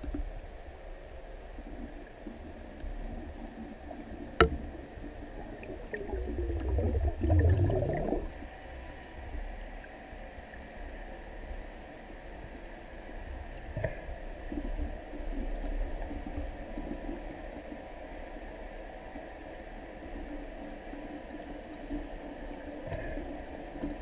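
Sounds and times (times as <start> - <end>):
low underwater rumble: 1.5 - 10.8
watery rush with falling pitch: 5.5 - 8.6.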